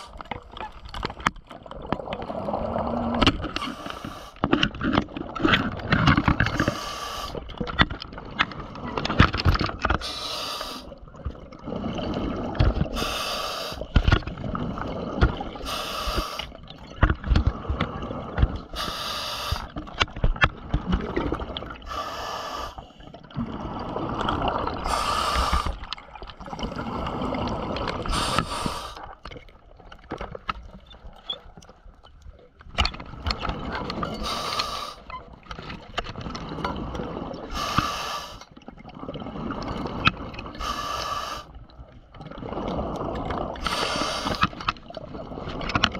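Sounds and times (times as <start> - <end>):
clicking and crackling: 0.1 - 2.4
diver breathing through regulator: 6.5 - 7.4, 10.0 - 10.9, 12.9 - 13.9, 15.6 - 16.5, 18.7 - 19.7, 21.8 - 23.0, 24.8 - 25.8, 26.8 - 29.1, 34.1 - 35.1, 37.5 - 38.5, 40.6 - 41.6, 42.8 - 44.5
bubbles rushing: 11.0 - 13.0, 13.9 - 15.7, 19.8 - 21.9, 23.2 - 28.5, 38.7 - 40.6, 42.0 - 45.9.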